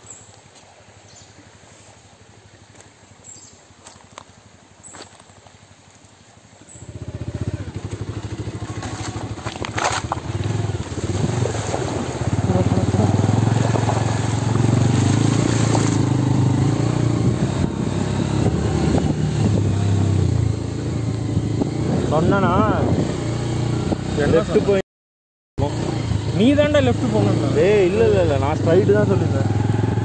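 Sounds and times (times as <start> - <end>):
motorcycle engine under load: 6.7 - 24.2.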